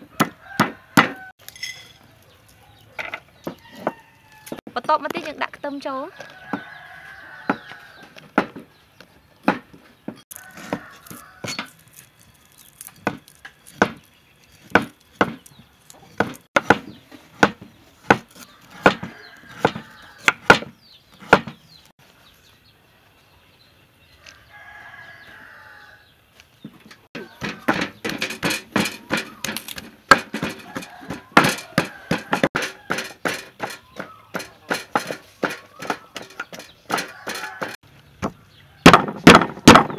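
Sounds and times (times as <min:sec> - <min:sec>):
pestle pounding in wooden mortar: 0:00.1 - 0:01.2, 0:14.6 - 0:15.5, 0:16.2 - 0:21.6, 0:27.2 - 0:37.8, 0:38.9 - 0:39.9
cleaver chopping on wooden board: 0:00.1 - 0:01.3, 0:13.0 - 0:14.0, 0:14.6 - 0:15.5, 0:16.2 - 0:21.6, 0:27.2 - 0:37.8, 0:38.9 - 0:39.9.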